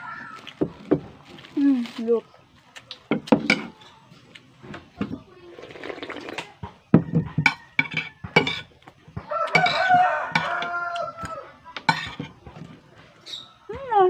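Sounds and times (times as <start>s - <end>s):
rooster crowing: 0.0s - 0.6s, 7.0s - 8.6s, 9.2s - 11.8s
spoon scraping on plate: 7.4s - 8.8s, 9.5s - 10.8s, 11.8s - 12.4s.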